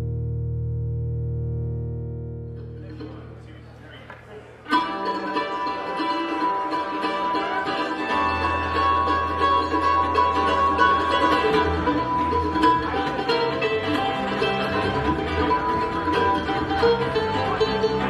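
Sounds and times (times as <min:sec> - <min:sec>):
electric bass guitar: 0:00.0 - 0:03.8, 0:07.9 - 0:18.0
acoustic guitar: 0:00.0 - 0:18.0
mandolin: 0:00.0 - 0:18.0
fiddle: 0:04.6 - 0:18.0.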